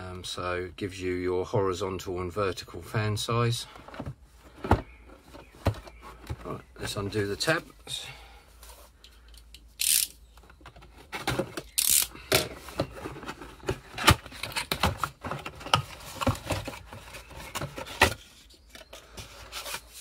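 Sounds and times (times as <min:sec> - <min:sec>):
cardboard rustling and knocking: 0:03.8 - 0:07.1, 0:12.4 - 0:20.0.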